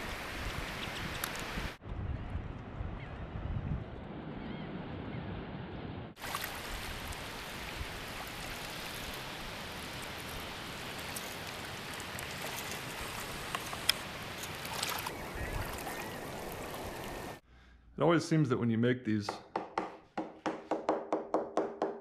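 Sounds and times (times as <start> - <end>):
wind: 0.0 - 19.9
small waves washing: 6.2 - 17.4.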